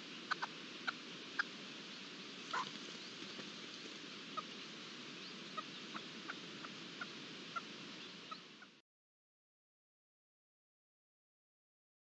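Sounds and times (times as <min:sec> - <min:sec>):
steady background hiss: 0:00.0 - 0:08.8.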